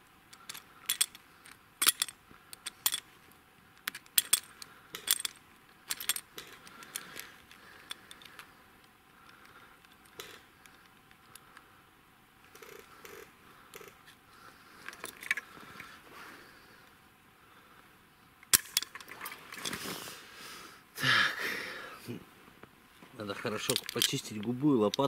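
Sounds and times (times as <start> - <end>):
metal trap clinking and jangling: 0.4 - 1.2, 1.8 - 3.0, 4.2 - 6.6, 23.6 - 24.4.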